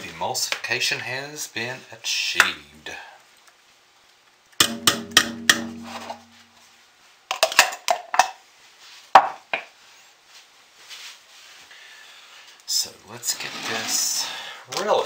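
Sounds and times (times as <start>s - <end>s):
blender head knocking on pot: 4.6s - 6.3s
pot ringing: 4.6s - 6.5s.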